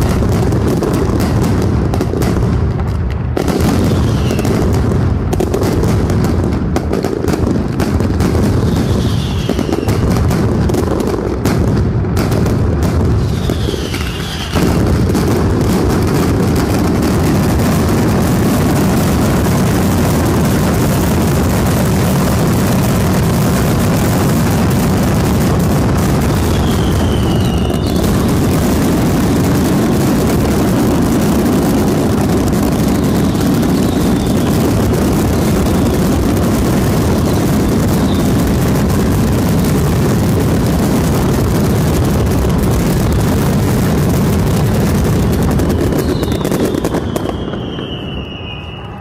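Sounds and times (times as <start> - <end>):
firecrackers banging: 0.0 - 49.0
falling whistles: 3.9 - 4.5, 8.8 - 10.0, 13.2 - 14.6, 26.5 - 28.0, 45.6 - 49.0.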